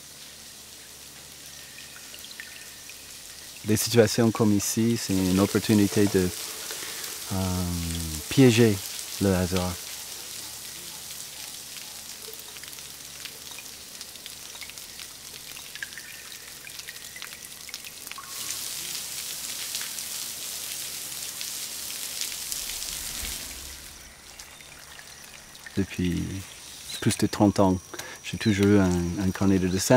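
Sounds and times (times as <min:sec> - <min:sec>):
water drops pattering on rocks: 0:04.8 - 0:18.7.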